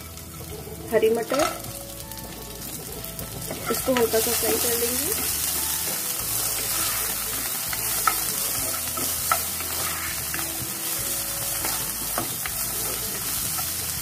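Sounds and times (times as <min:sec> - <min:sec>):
vegetables sizzling in hot oil: 0:00.0 - 0:14.0
wooden spatula stirring: 0:03.1 - 0:14.0.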